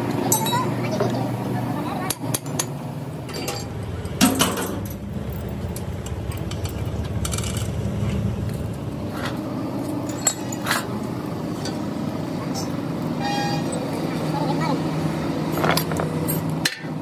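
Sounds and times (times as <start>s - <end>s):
steady low hum: 0.0s - 17.0s
metal chains clinking and knocking: 10.0s - 10.8s.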